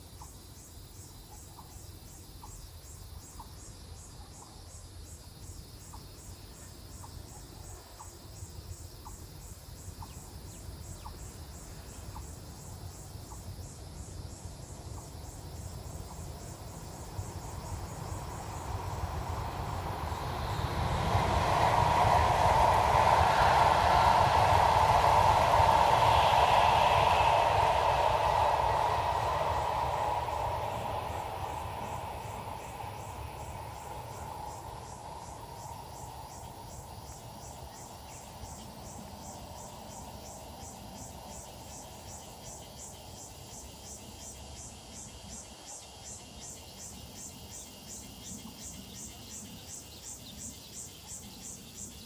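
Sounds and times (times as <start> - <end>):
insects chirping: 0.0 - 52.0
high-speed train rushing past: 10.4 - 45.4.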